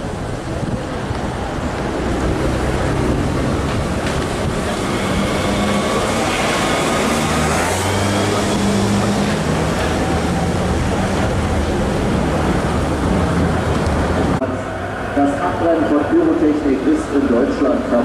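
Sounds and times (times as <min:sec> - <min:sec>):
vehicle engine running: 0:00.0 - 0:14.4
street noise: 0:00.0 - 0:18.0.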